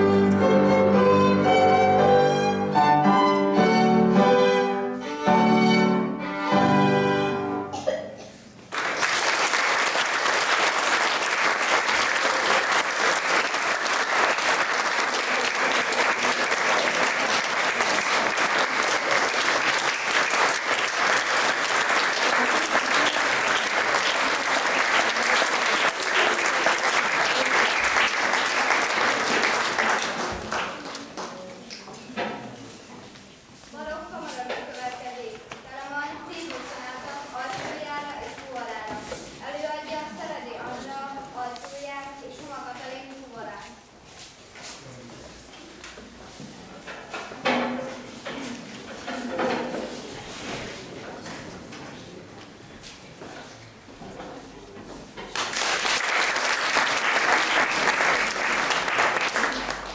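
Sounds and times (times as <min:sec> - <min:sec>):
violin with piano: 0:00.0 - 0:07.7
audience applauding: 0:08.7 - 0:31.9, 0:55.3 - 0:59.9.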